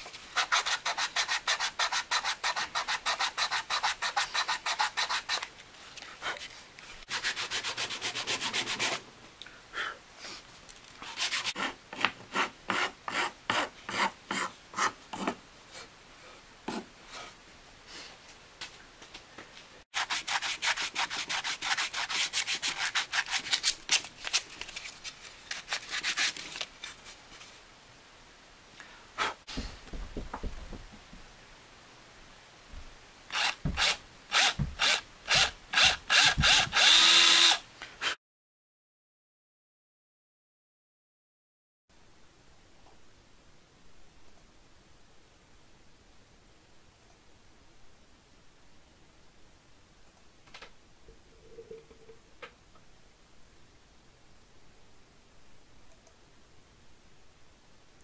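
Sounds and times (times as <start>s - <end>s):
hand file scraping wood: 0.3s - 5.5s, 6.2s - 9.0s, 11.0s - 15.4s, 20.0s - 23.7s.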